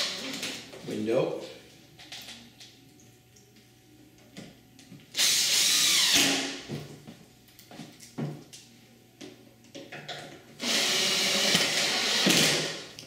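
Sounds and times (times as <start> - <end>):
cordless drill driving a screw: 5.2 - 6.3, 10.6 - 12.8.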